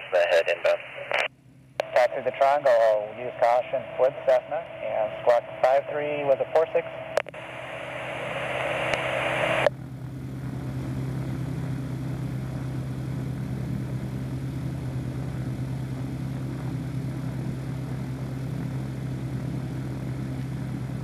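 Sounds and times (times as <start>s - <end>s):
aircraft engine idling: 7.4s - 21.0s.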